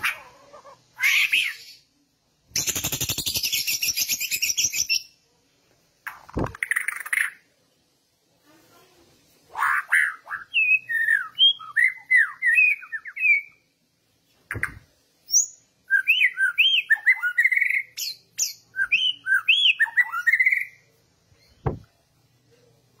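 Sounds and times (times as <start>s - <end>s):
bird singing whistled notes: 2.6s - 5.2s, 10.3s - 13.6s, 15.2s - 21.8s
short thumps: 21.6s - 21.9s.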